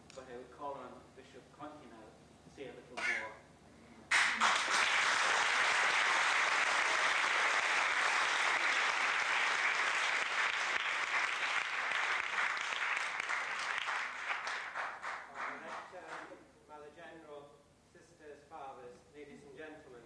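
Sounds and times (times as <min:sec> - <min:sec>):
audience applauding: 0:04.1 - 0:16.3.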